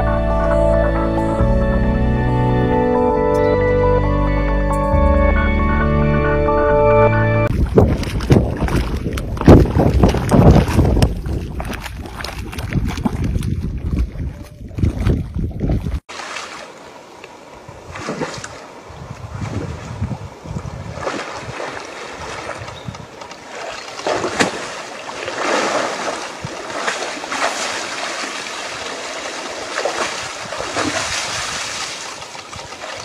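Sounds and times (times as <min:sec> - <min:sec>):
wind rumble on microphone: 0:07.5 - 0:16.0, 0:17.7 - 0:23.2, 0:30.0 - 0:33.0
rough water with waves splashing: 0:07.5 - 0:33.0.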